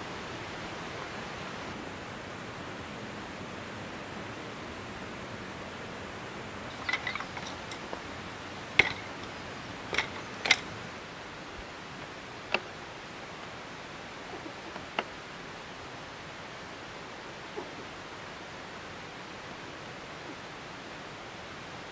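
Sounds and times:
steady background hiss: 0:00.0 - 0:21.9
light knocks: 0:08.8 - 0:10.8.

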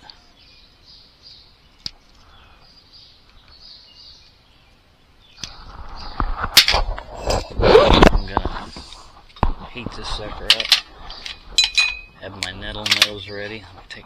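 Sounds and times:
faint bird chirps: 0:00.0 - 0:06.4
hand tools clattering: 0:10.4 - 0:14.0.

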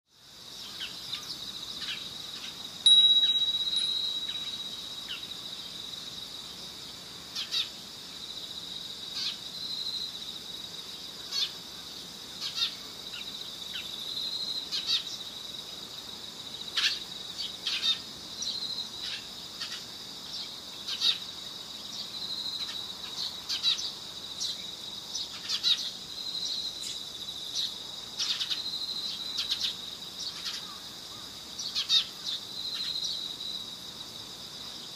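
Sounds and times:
insect trilling: 0:00.6 - 0:06.4
chime ringing: 0:02.9 - 0:04.9
sharp bird chirps: 0:02.9 - 0:05.3.

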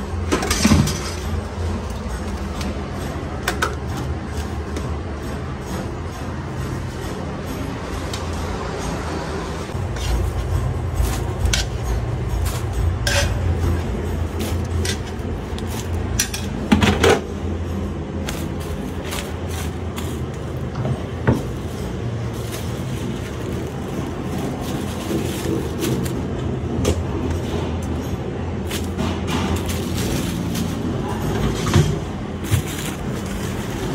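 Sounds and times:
steady low rumble: 0:09.4 - 0:33.9
metal utensils clinking: 0:09.8 - 0:33.9
loud metal clanks: 0:23.8 - 0:33.9.

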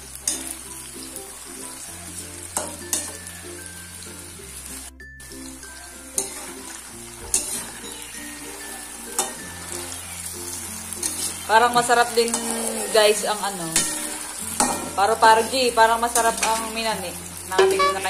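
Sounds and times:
food deep-frying in hot oil: 0:00.0 - 0:18.0
spatula clinking against pan: 0:02.6 - 0:03.2, 0:06.1 - 0:06.6, 0:07.2 - 0:08.1, 0:08.7 - 0:09.5, 0:17.6 - 0:18.0.

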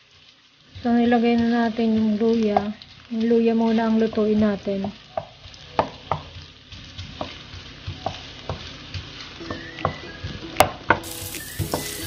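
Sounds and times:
sizzling in hot oil: 0:00.0 - 0:12.0
spatula tapping and scraping pan: 0:03.7 - 0:09.6.

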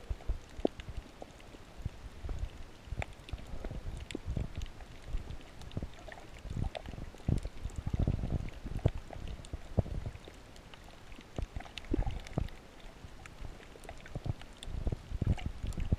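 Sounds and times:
faint clicks: 0:00.4 - 0:01.6, 0:02.2 - 0:08.0.

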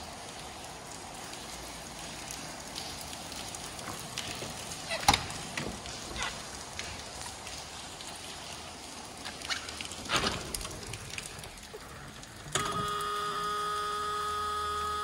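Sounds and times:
car warning buzzer: 0:12.6 - 0:15.0.

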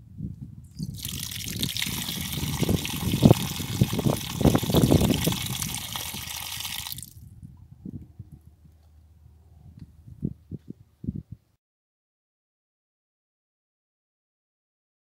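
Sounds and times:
tap water splashing on ground: 0:00.8 - 0:07.2.

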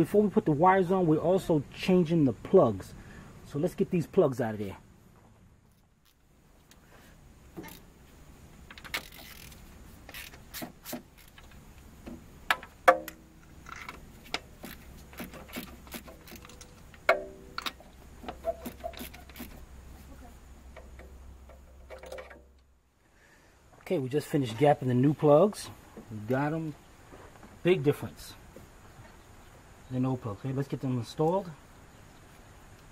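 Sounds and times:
low steady hum: 0:00.0 - 0:32.9
ratchet wrench clicking: 0:08.7 - 0:11.5.

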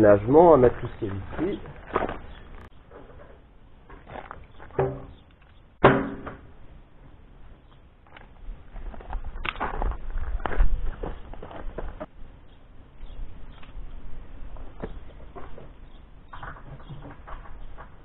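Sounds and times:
knocks on motorcycle bodywork: 0:05.8 - 0:06.4.

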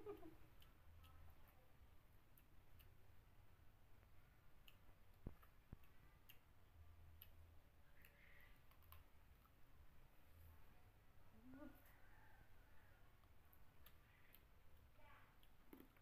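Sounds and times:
eating mouth and finger clicks: 0:00.1 - 0:03.4, 0:04.0 - 0:09.7, 0:13.2 - 0:16.0.

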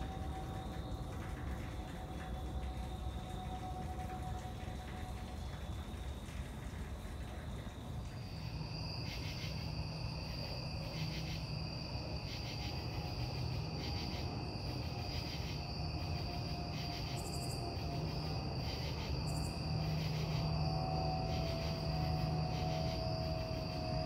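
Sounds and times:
insects trilling: 0:00.0 - 0:24.0
low steady hum: 0:00.0 - 0:24.0
rhythmic pulsing insect calls: 0:00.0 - 0:24.0.

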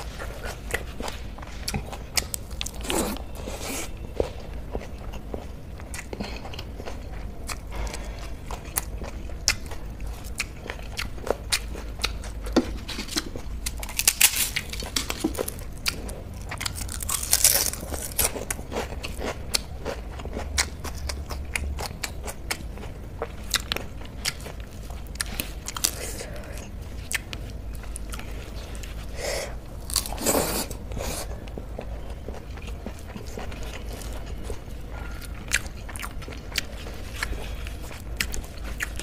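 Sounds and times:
chewing and mouth clicks: 0:00.0 - 0:29.1, 0:29.8 - 0:39.0
crunching crisp papad: 0:12.7 - 0:19.6, 0:23.4 - 0:31.5.

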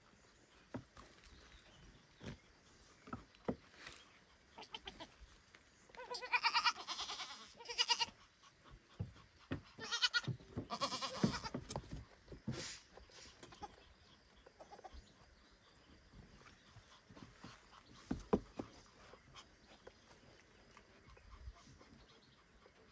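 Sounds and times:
goat kid bleating: 0:04.6 - 0:05.2, 0:05.9 - 0:08.2, 0:09.7 - 0:11.6.

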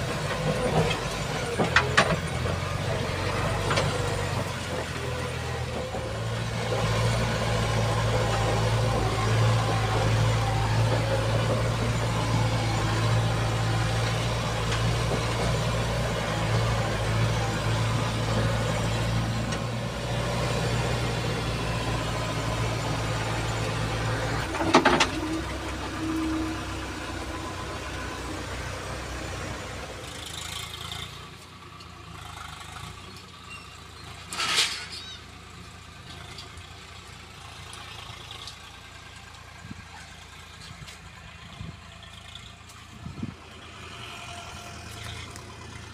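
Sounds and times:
diesel engine running: 0:00.0 - 0:45.9.

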